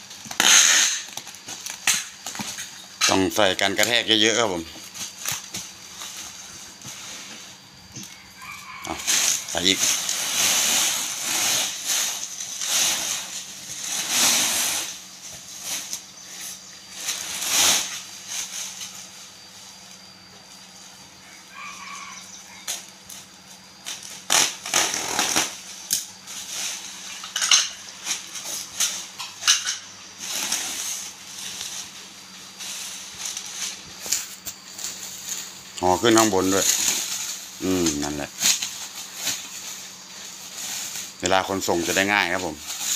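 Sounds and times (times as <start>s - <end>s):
bubble wrap crinkling: 23.9s - 27.1s, 30.0s - 42.9s.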